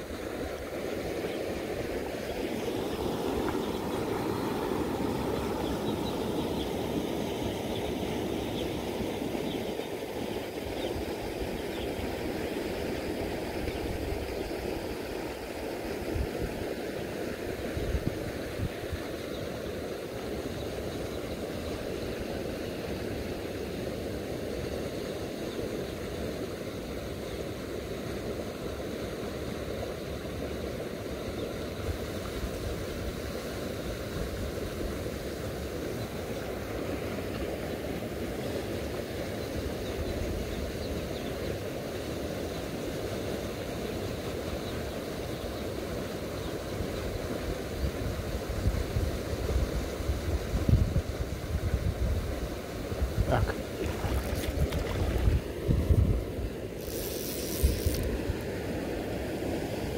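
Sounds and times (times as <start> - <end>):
river current rushing: 0.0 - 20.9, 52.6 - 59.9.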